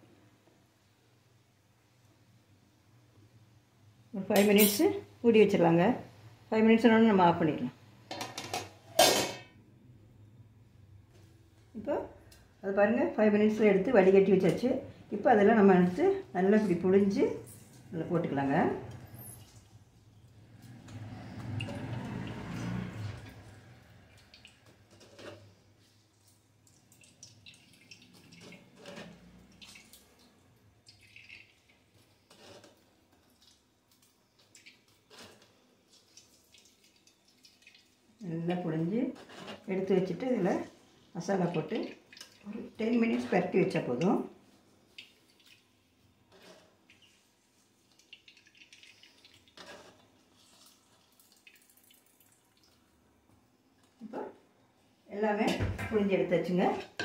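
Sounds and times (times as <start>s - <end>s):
water squelching and dripping: 16.0s - 39.8s, 40.4s - 54.1s.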